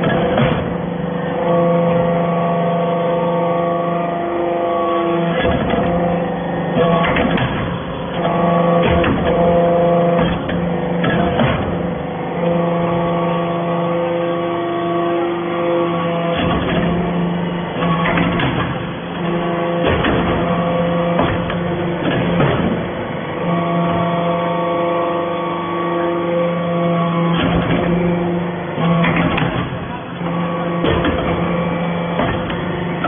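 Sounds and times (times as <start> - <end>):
hydraulic press motor hum: 0.0 - 33.0.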